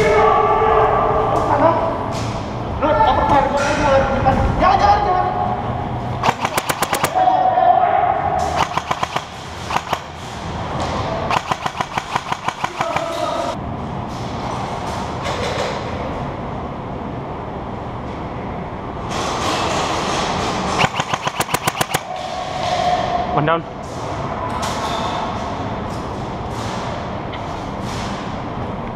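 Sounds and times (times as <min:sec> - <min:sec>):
airsoft rifle bursts: 0:06.2 - 0:07.2, 0:08.6 - 0:10.2, 0:11.3 - 0:13.4, 0:20.8 - 0:22.1.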